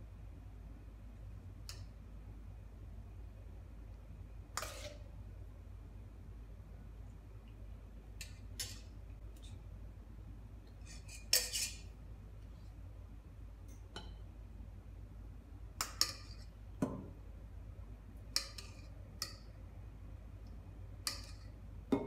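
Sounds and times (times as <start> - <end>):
metal spoon scraping a pot: 4.5 - 5.2, 8.2 - 8.9, 10.8 - 11.9.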